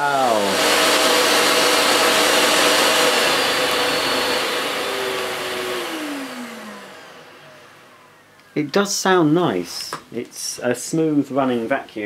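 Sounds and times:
vacuum cleaner winding down: 0.0s - 8.4s
vacuum cleaner motor whine: 0.0s - 8.6s.

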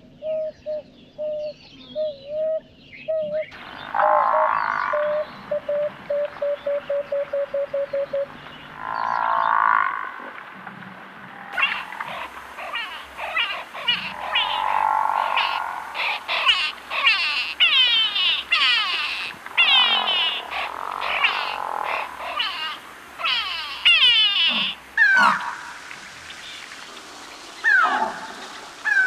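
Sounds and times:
chorus of descending calls: 11.5s - 25.6s
pulsing animal call: 11.5s - 25.6s.

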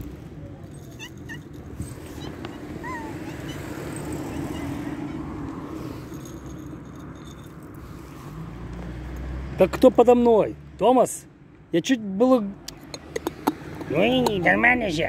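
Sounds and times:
cat mewing: 1.0s - 5.3s.

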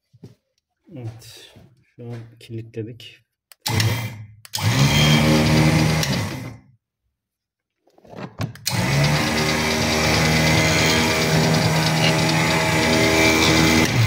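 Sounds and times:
electric winch motor running: 3.7s - 6.6s, 8.6s - 14.0s.

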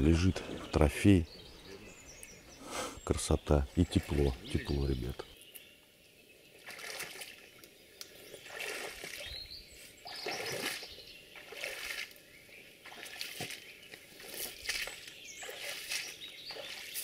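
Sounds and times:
boots splashing through water: 6.6s - 7.5s, 8.3s - 9.4s, 10.0s - 12.2s, 12.8s - 17.0s.

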